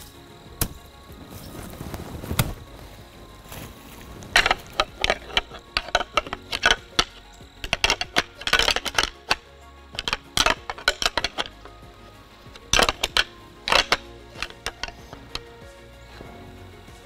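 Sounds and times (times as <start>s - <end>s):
antlers clacking and grinding: 4.2s - 16.4s.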